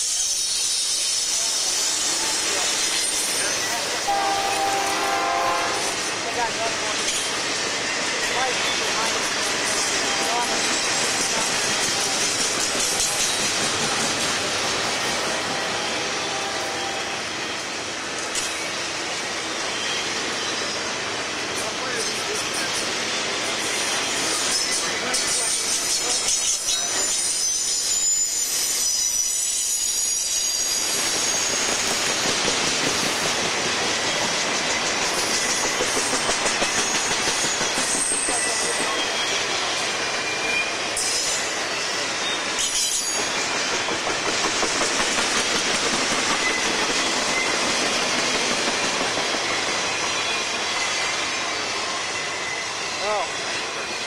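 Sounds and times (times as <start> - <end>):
high wheel squeals: 0.0 - 5.9, 24.6 - 32.3, 34.8 - 43.6
train wheels rumbling on rail: 0.0 - 54.0.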